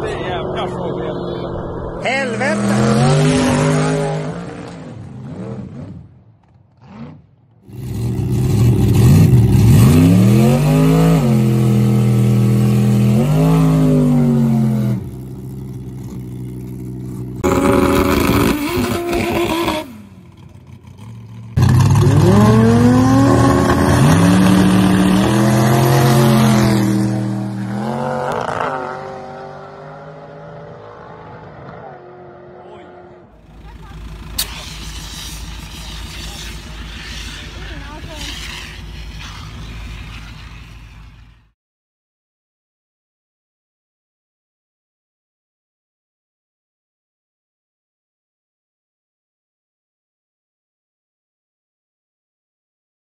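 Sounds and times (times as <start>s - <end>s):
race car engines revving: 0.0s - 41.4s.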